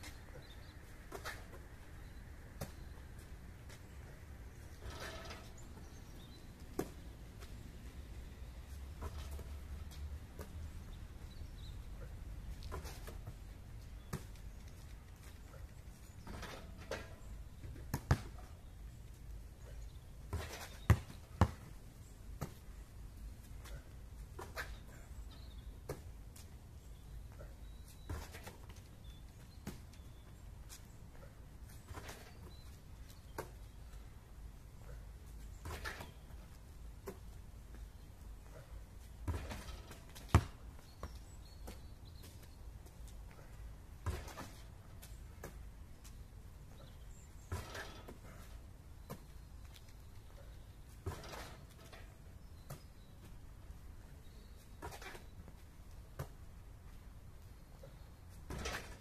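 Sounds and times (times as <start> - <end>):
basketball thumping on asphalt: 6.8 - 7.0, 16.2 - 18.5, 20.3 - 21.8, 22.4 - 22.6, 35.6 - 36.2, 39.2 - 41.9, 44.0 - 44.6, 45.3 - 45.7, 47.5 - 49.3, 51.0 - 51.6, 56.1 - 56.4, 58.5 - 59.0
basketball bouncing on asphalt: 12.6 - 14.5, 17.6 - 18.8, 20.3 - 21.8, 22.4 - 22.7, 39.2 - 42.5, 44.0 - 44.6, 45.3 - 45.7, 54.8 - 56.4
ball rebounding off hoop: 58.5 - 59.0.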